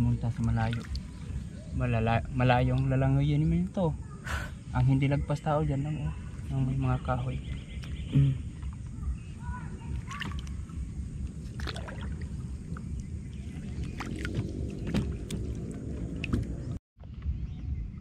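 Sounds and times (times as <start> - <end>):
water sloshing and splashing: 0.0 - 3.0, 6.2 - 16.8
low rumble: 6.1 - 18.0.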